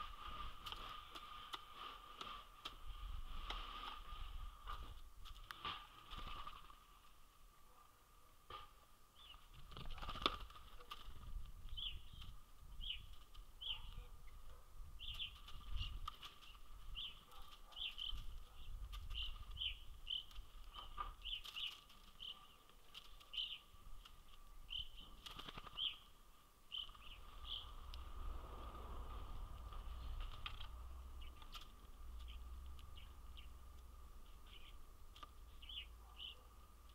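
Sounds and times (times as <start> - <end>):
high bird chirps: 26.7 - 28.0, 35.5 - 36.4.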